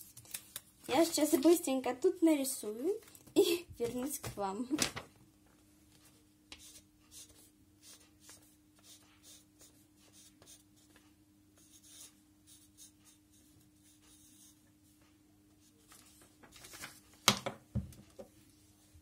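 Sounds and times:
marker pen writing on paper: 6.6 - 11.0, 11.6 - 14.6.

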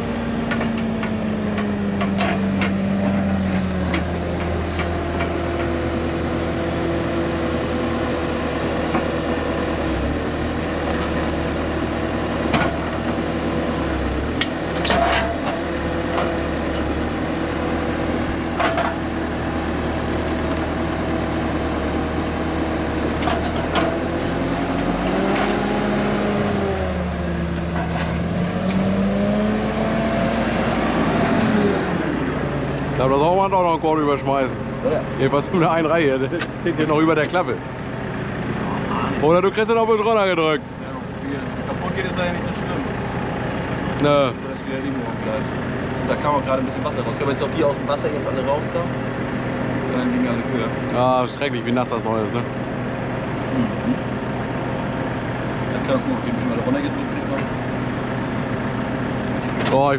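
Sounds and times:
engine running under load: 0.0 - 59.9.

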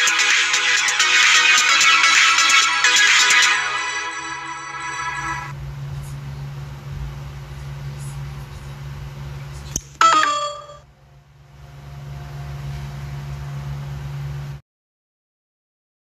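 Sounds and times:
electronic chime falling notes: 0.0 - 5.5, 10.0 - 10.8
low electrical hum: 5.5 - 14.6.

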